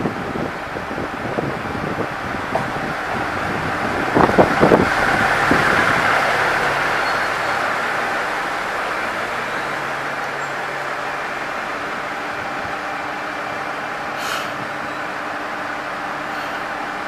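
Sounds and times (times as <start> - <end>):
diesel engine running: 0.0 - 17.0
air hiss: 14.1 - 14.8, 16.3 - 16.8.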